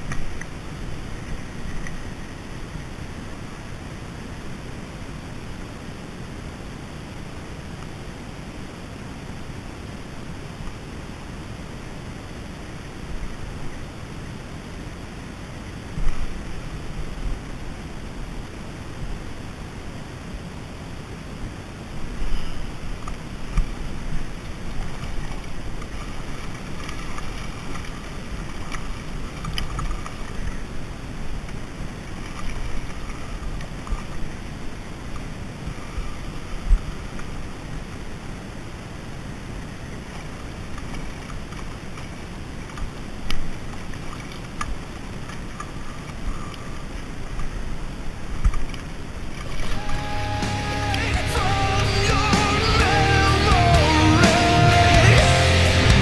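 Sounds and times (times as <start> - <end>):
wind rumbling on microphone: 0.0 - 50.5
water lapping: 21.6 - 51.6
background music: 49.7 - 56.0.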